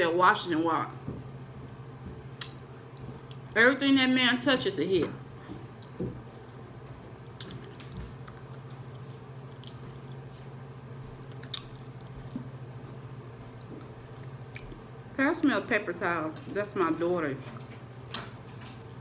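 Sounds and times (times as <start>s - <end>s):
steady low hum: 0.0s - 19.0s
person biting and chewing: 5.7s - 10.3s, 11.2s - 15.1s.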